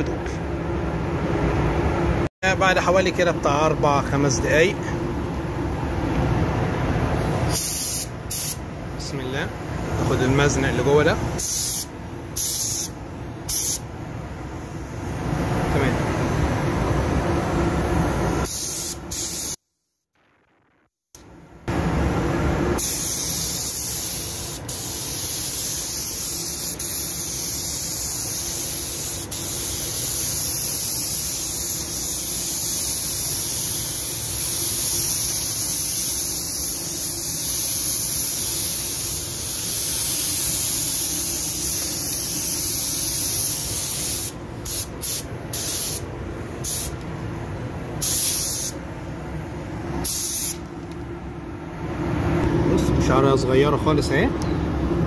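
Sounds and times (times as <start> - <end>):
paint spray gun hissing: 7.5 - 8.6, 11.4 - 13.8, 18.4 - 19.6, 22.8 - 46.0, 46.6 - 47.0, 48.0 - 48.8, 50.0 - 50.6.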